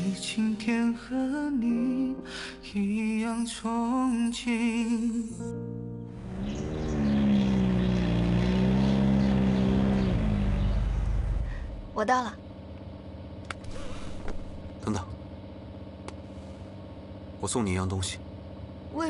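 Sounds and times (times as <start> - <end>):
person singing a ballad: 0.0 - 5.7
sports car driving past: 6.1 - 12.0.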